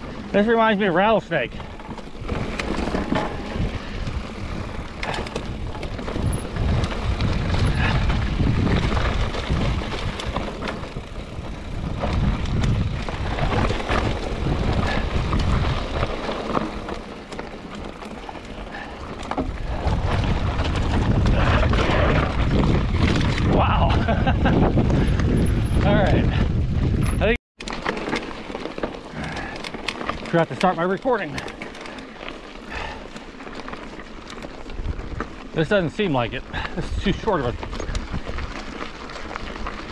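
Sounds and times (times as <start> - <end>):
bike rattling over bumps: 0.0 - 39.9
tyres rolling on dirt: 0.0 - 39.9
wind rushing over microphone: 1.5 - 16.8, 18.7 - 27.4.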